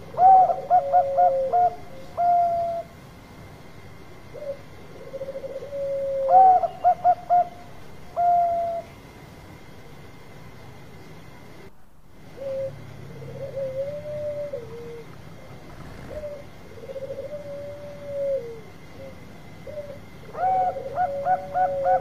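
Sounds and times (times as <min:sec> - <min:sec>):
dove cooing: 0:00.0 - 0:03.0, 0:04.3 - 0:09.0, 0:12.2 - 0:22.0.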